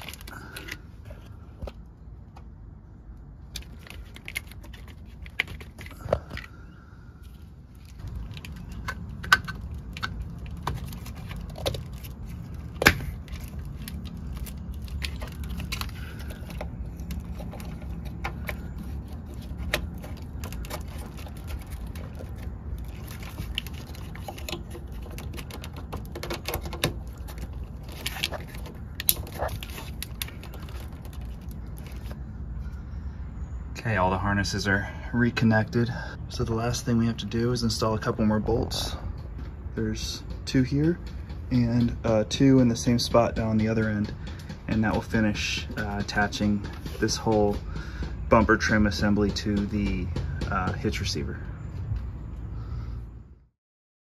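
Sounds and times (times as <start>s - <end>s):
plastic connectors clicking and rattling: 0.0s - 1.8s, 3.4s - 6.5s, 7.3s - 32.2s.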